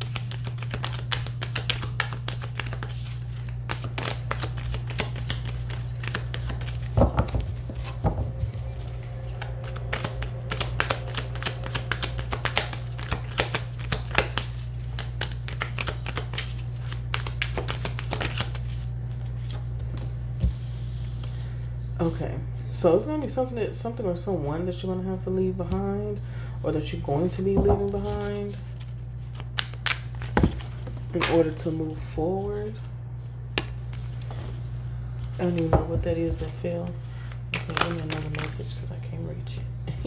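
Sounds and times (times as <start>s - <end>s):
cards being shuffled: 0.0s - 20.1s, 27.8s - 31.4s, 37.5s - 38.7s
low hum: 0.0s - 29.4s.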